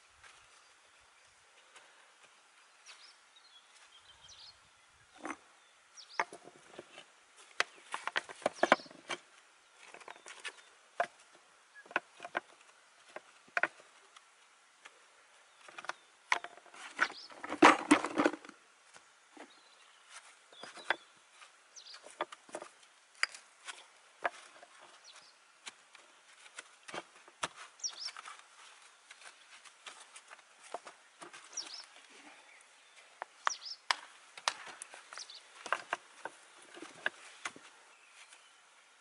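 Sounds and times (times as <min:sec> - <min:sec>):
stone knocking and scraping on stone: 0:06.1 - 0:09.2.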